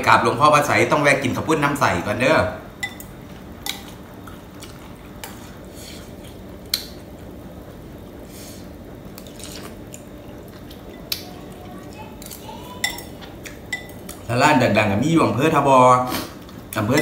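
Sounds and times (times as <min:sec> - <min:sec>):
low steady hum: 0:00.0 - 0:17.0
cutlery clinking against ceramic bowl: 0:02.8 - 0:03.9, 0:12.2 - 0:14.2.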